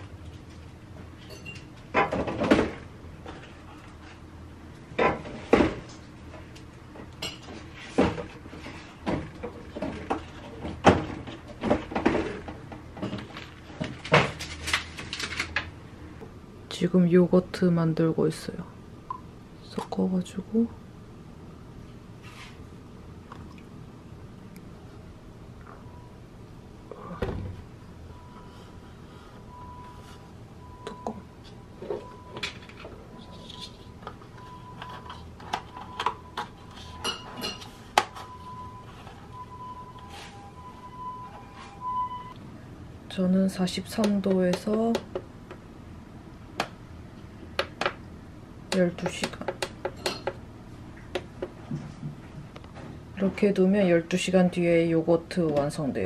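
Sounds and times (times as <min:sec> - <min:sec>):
kitchen containers knocking and clunking: 0:09.0 - 0:14.4.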